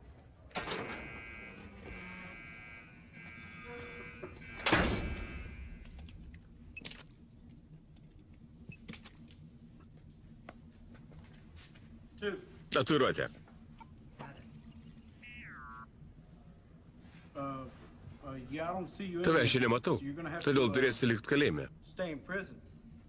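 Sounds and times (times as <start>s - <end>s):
steady buzzing tone: 0.8s - 5.8s.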